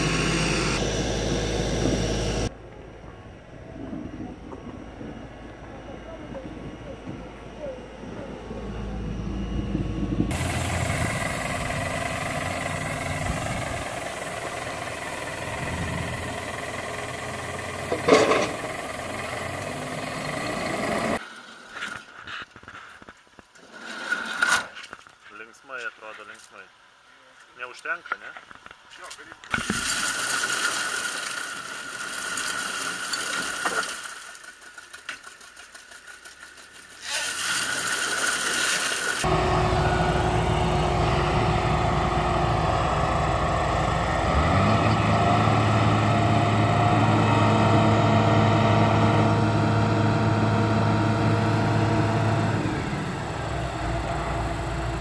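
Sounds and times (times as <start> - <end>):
heavy diesel engines running: 0.0 - 21.2, 38.9 - 55.0
wheel spinning in mud: 0.0 - 25.2, 29.4 - 55.0.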